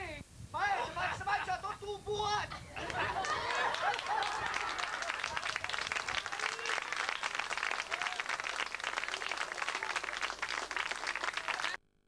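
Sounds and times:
voices calling out: 2.4 - 11.8
audience applauding: 2.8 - 11.8.

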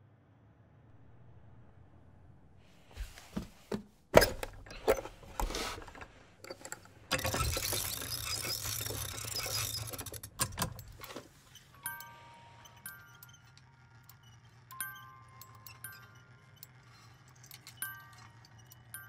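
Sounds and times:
music box crank ratcheting: 4.3 - 19.0.

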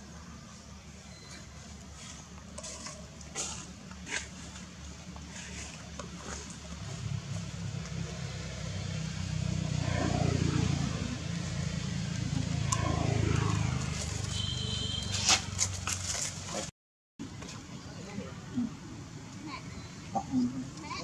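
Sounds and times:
passing traffic engine rumble: 0.7 - 16.6.

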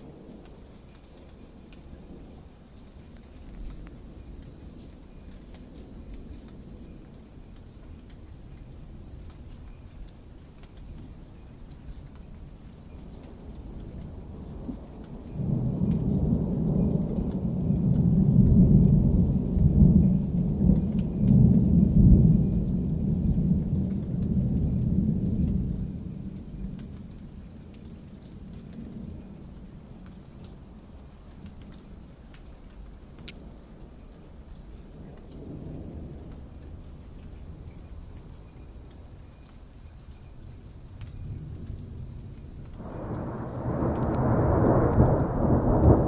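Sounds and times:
light rain ticking: 0.0 - 46.0
rolling thunder: 13.4 - 27.0, 41.2 - 46.0.

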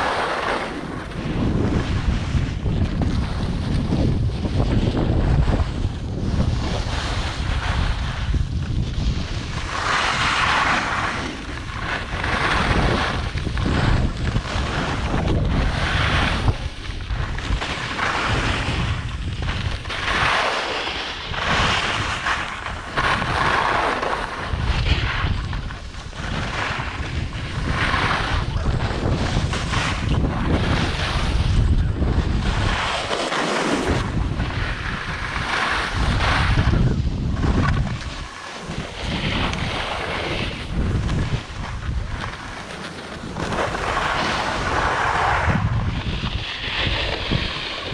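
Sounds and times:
wind buffeting microphone: 0.0 - 47.9
skis hissing on snow: 9.0 - 13.8, 43.5 - 47.9.

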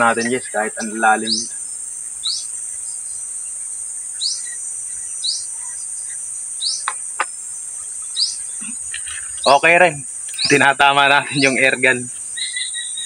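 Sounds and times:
high-pitched insect chorus: 0.0 - 13.0.

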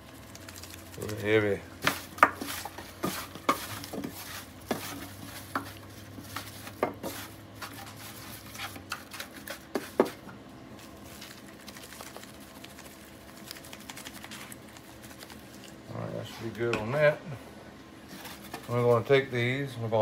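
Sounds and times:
seasoning shaker ticks: 0.0 - 3.7, 11.2 - 15.8.

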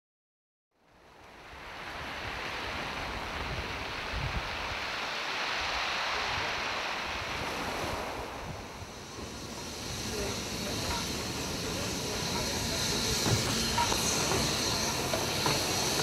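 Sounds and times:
waves washing over rocks: 1.5 - 12.1
wind buffeting microphone: 2.0 - 5.0.

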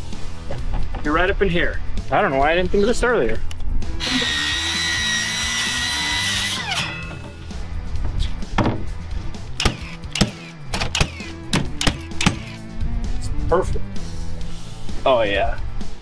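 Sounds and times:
circular saw cutting plywood: 4.0 - 7.2, 9.6 - 12.6
nail gun shots: 9.6 - 12.6.

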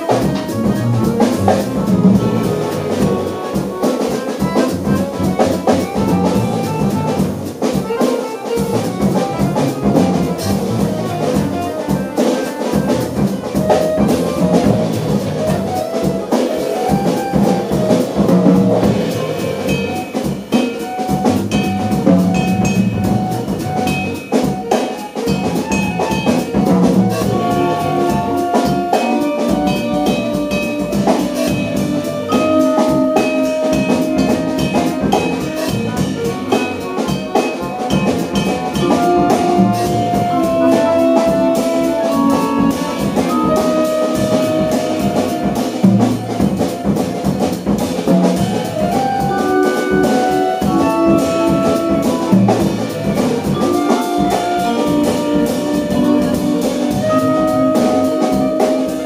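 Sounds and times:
upright bass: 0.0 - 12.0, 12.6 - 16.2, 16.9 - 20.2, 21.1 - 24.3, 25.3 - 59.0
clarinet: 0.0 - 59.0
drum kit: 0.0 - 59.0
accordion: 34.1 - 47.7.

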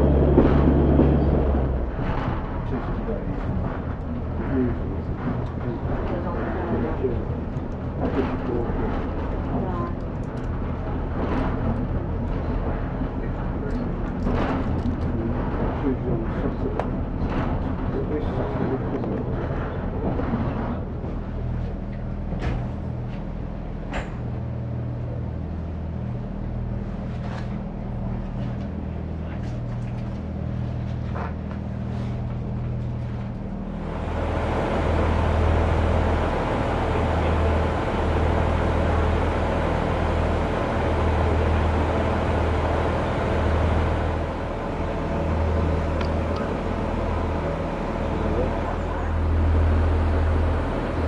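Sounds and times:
diesel railbus droning: 0.0 - 51.0
light clicks of train: 0.1 - 25.2, 26.8 - 33.4, 45.8 - 47.4.

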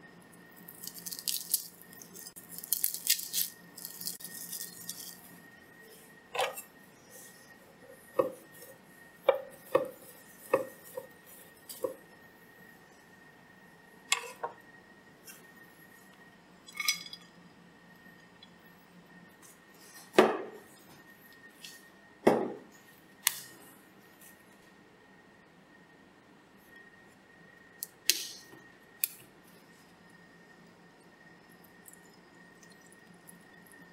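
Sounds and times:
faint high whine: 0.0 - 33.9
glass clink: 16.7 - 17.3.

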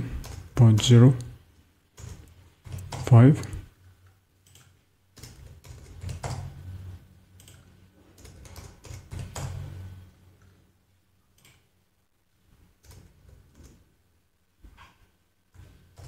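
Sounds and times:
keyboard keys clicking: 2.0 - 3.6, 7.4 - 9.7.

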